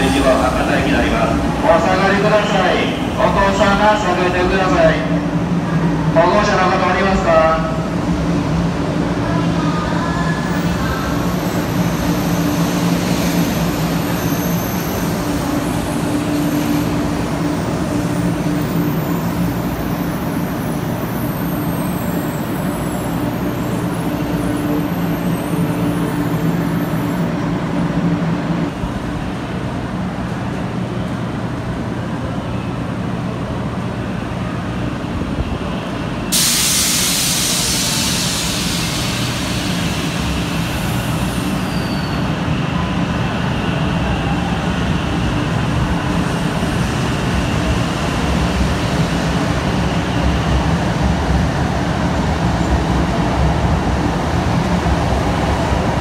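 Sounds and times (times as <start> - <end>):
train motors humming: 0.0 - 6.2
air hissing out: 36.3 - 41.9.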